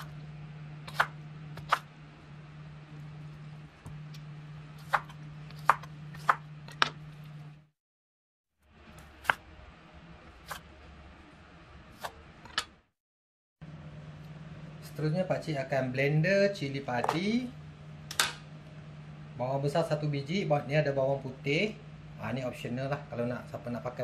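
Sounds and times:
steady low hum: 0.0 - 7.7, 13.6 - 24.0.

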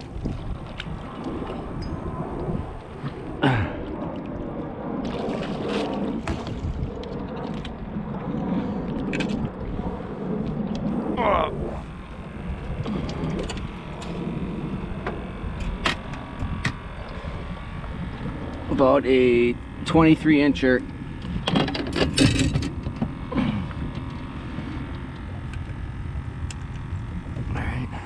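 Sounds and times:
water around a boat: 0.0 - 28.0
wind: 0.0 - 28.0
scattered clicks and knocks: 21.2 - 23.2.

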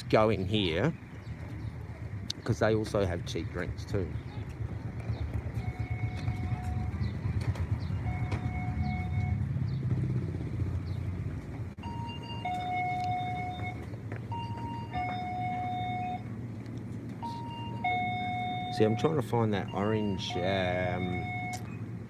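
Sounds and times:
low rumble of street noise: 0.0 - 22.0
two-note electronic door chime: 14.4 - 16.2.

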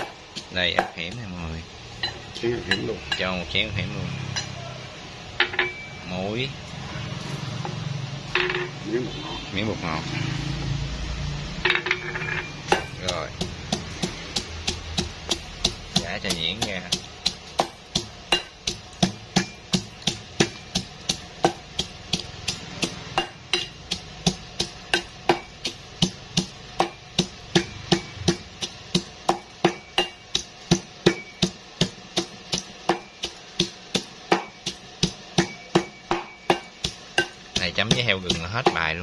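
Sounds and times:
metal pestle pounding in steel bowl: 0.0 - 3.2, 11.6 - 39.0.

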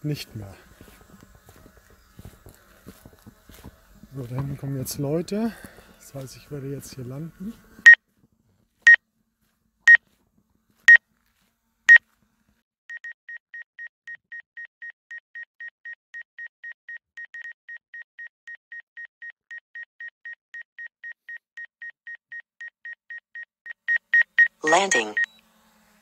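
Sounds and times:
remote controller beeping: 23.4 - 25.4.

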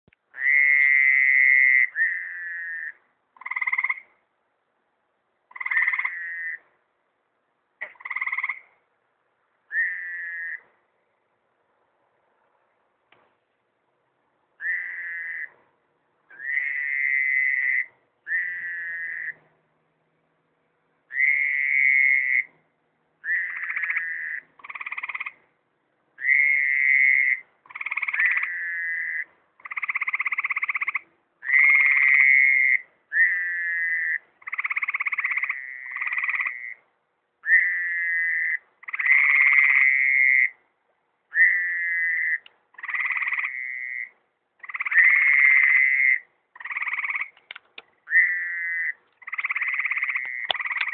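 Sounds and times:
frogs trilling: 0.3 - 4.1, 5.5 - 6.6, 7.8 - 8.7, 9.7 - 10.7, 14.6 - 15.5, 16.3 - 19.4, 21.1 - 22.5, 23.2 - 25.4, 26.2 - 36.8, 37.4 - 40.6, 41.3 - 50.9.

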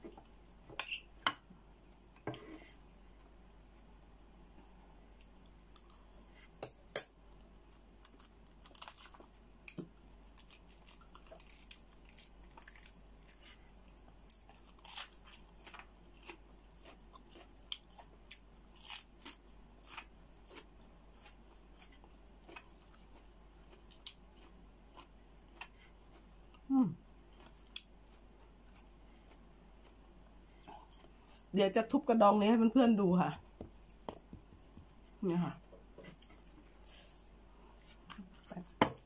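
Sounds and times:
person chewing: 14.2 - 26.7, 27.3 - 31.4.

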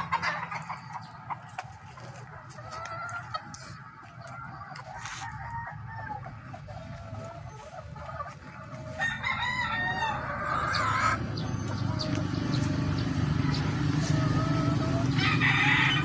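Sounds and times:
rooster crowing: 8.9 - 11.2, 14.0 - 16.0.

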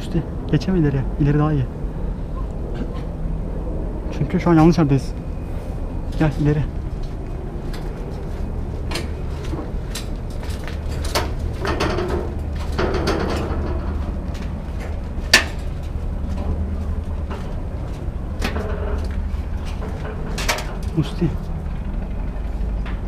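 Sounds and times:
steady low rumble: 0.0 - 23.0
footsteps on metal roof framework: 5.1 - 23.0.

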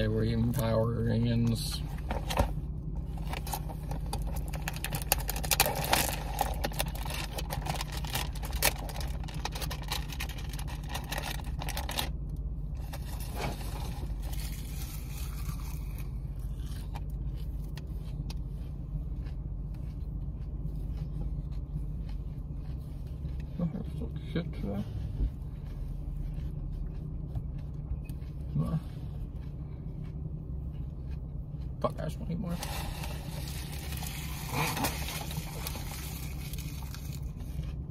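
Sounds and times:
low car hum: 0.0 - 37.9
crunchy leaf clicks: 3.2 - 12.2, 32.6 - 37.8
plastic package crackling: 3.4 - 12.1, 32.6 - 37.4.

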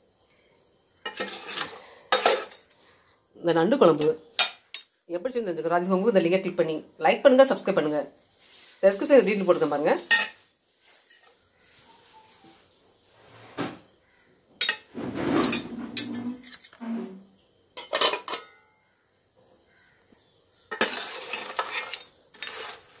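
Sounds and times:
metal utensils clinking on pots: 1.0 - 2.8, 3.9 - 5.0, 10.0 - 10.4, 14.6 - 16.8, 17.8 - 18.6, 20.7 - 23.0.

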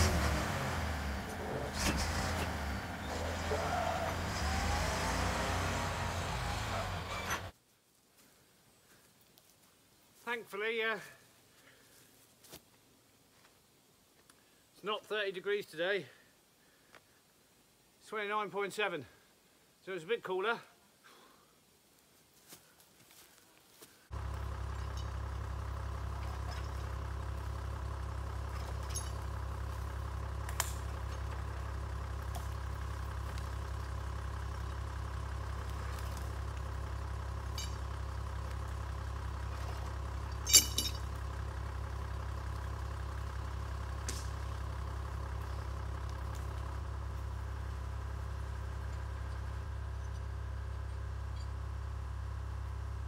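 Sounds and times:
engine idling: 0.0 - 7.5, 24.1 - 53.0.

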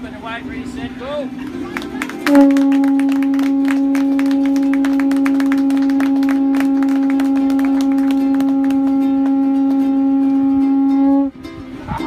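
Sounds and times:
conch shell blown: 2.2 - 11.4.

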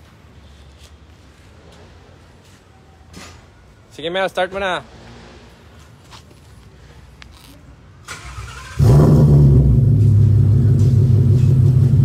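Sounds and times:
car engine starting and idling: 8.0 - 12.0
engine cranking: 8.1 - 9.4.

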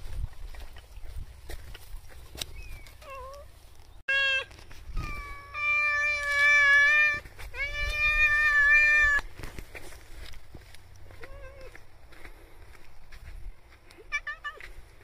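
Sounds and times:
cat meowing: 4.1 - 9.2.

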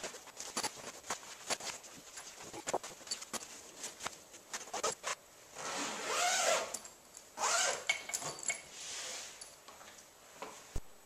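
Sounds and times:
vinyl fabric rustling: 0.0 - 6.5
zipper being pulled: 4.5 - 6.8, 7.4 - 7.9.

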